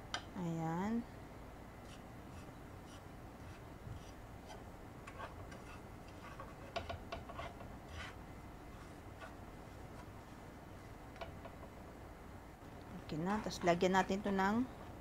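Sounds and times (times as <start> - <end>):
spatula scraping pan: 1.9 - 10.2, 13.1 - 14.4.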